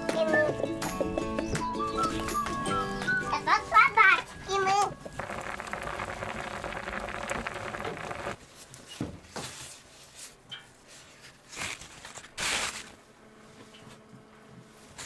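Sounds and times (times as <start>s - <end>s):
wood fire crackling: 5.0s - 8.4s.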